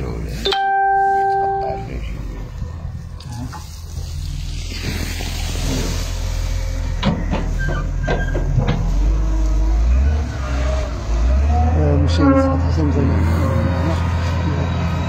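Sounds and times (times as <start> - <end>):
diesel loader engine rumbling: 0.0 - 15.0.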